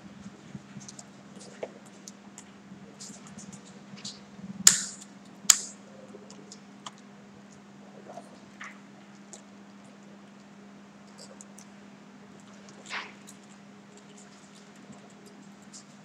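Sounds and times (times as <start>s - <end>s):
faint steady hum: 0.0s - 16.0s
scissors snipping twine: 4.7s - 5.8s.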